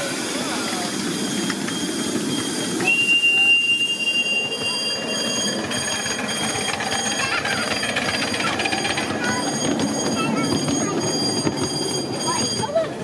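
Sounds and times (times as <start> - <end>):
high-pitched steam whistle: 0.0 - 7.1
miniature train rumbling: 0.0 - 13.0.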